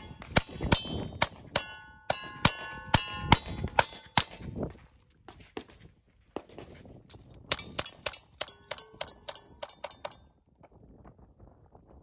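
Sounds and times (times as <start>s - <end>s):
steel plates ringing clang: 0.8s - 4.0s, 7.6s - 10.3s.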